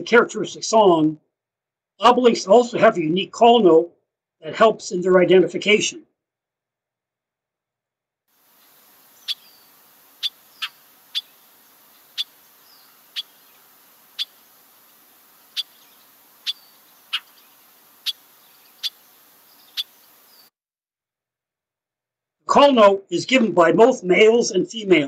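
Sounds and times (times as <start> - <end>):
faint recording hiss: 8.3 - 20.5
bird sharp call notes: 8.6 - 20.5.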